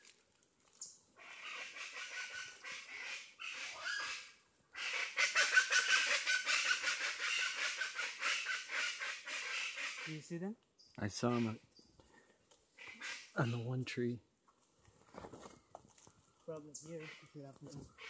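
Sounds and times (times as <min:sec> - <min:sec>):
bird grating calls: 0:00.8 - 0:10.2, 0:11.2 - 0:11.6, 0:12.8 - 0:13.7, 0:16.7 - 0:18.0.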